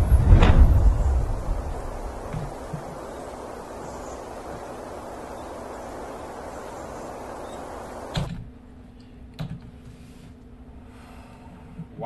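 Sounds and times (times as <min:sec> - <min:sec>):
wind-like whooshing noise: 0:00.0 - 0:08.3
low hum: 0:00.0 - 0:09.2.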